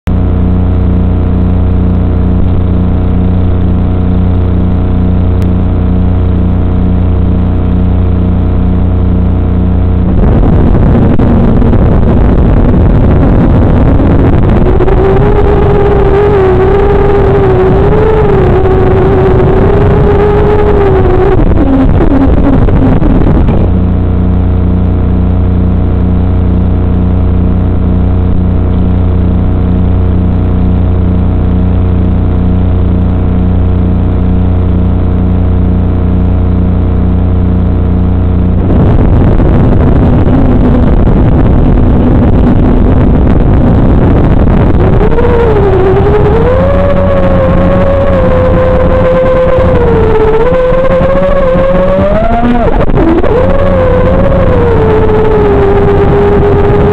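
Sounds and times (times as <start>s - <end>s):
steady electrical hum: 0.1s - 56.9s
quadcopter motors whining: 13.1s - 23.7s, 44.8s - 56.9s.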